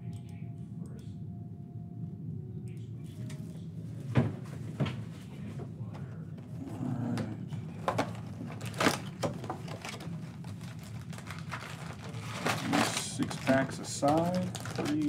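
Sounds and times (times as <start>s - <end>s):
steady low hum: 0.0s - 15.0s
plastic rustling and crinkling: 7.8s - 15.0s.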